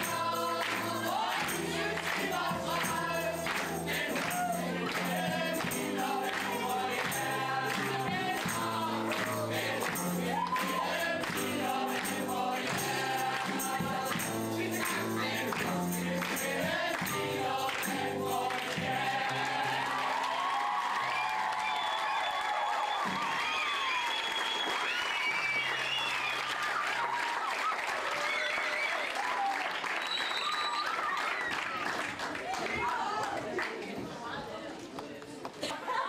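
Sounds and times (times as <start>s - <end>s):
percussion beat: 0.0s - 19.7s
acoustic guitar: 0.0s - 20.2s
choir singing: 0.0s - 20.3s.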